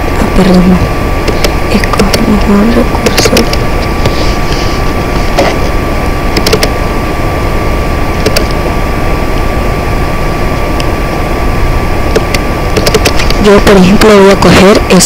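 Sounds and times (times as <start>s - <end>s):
background hiss and hum: 0.0s - 15.0s
faint constant tone: 0.0s - 15.0s
computer mouse clicking: 1.3s - 2.3s, 3.0s - 4.2s, 6.4s - 6.8s, 8.2s - 8.6s, 12.1s - 13.4s.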